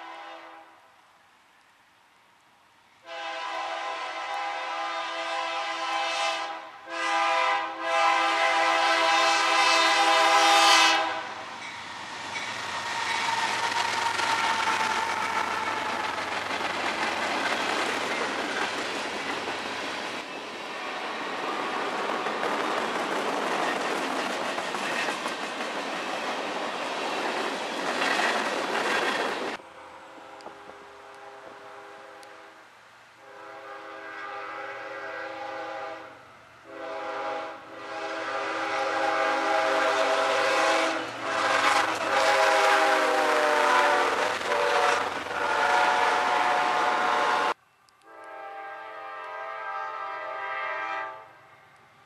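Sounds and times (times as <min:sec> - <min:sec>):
train air horn blasts: 0:00.0 - 0:00.8, 0:03.0 - 0:11.6, 0:29.6 - 0:51.9
train rumbling and rattling past: 0:02.9 - 0:52.0.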